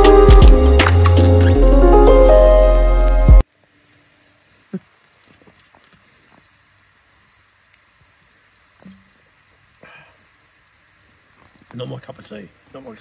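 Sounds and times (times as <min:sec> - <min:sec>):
faint clicks and ticks: 0:03.8 - 0:12.4.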